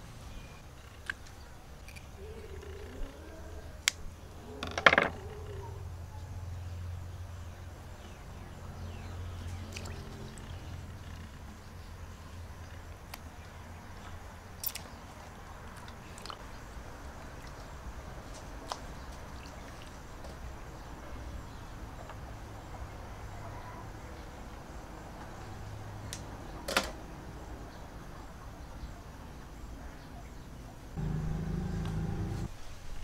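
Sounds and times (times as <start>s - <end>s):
wet handling in water: 17.2s - 20.5s.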